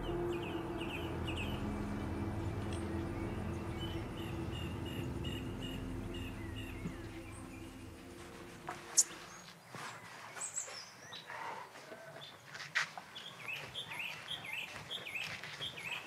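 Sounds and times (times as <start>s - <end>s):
low sustained drone: 0.0s - 9.6s
high chirping calls: 0.0s - 11.3s.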